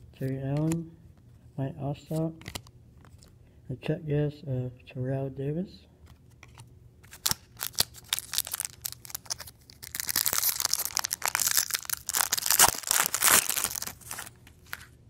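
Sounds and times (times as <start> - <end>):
foil wrapper crinkling and tearing: 7.0 - 14.9.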